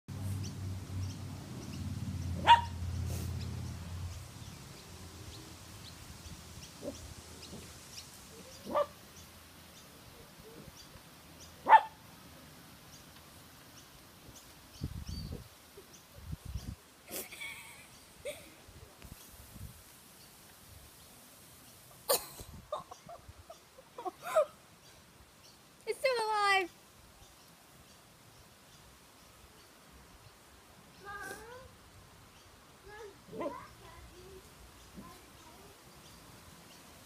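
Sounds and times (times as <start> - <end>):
dog barking: 2.4 - 2.8, 8.6 - 9.0, 11.6 - 12.0.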